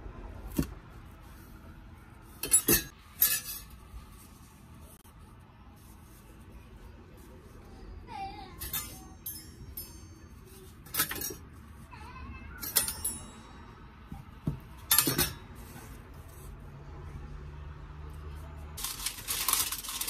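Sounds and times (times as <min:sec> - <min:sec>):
kitchenware clinking: 0:02.4 - 0:03.8, 0:08.6 - 0:11.5, 0:12.6 - 0:13.5, 0:14.1 - 0:15.6.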